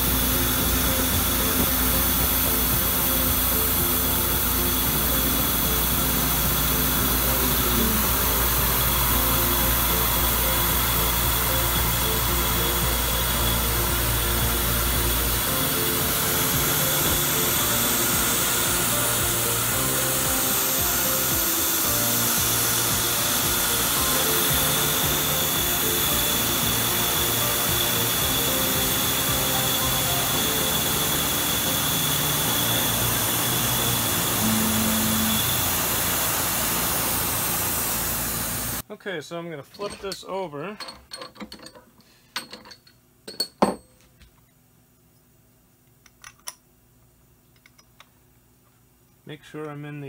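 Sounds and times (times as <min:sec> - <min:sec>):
background music: 0:00.0 - 0:38.8
milling machine cutting metal: 0:00.0 - 0:38.8.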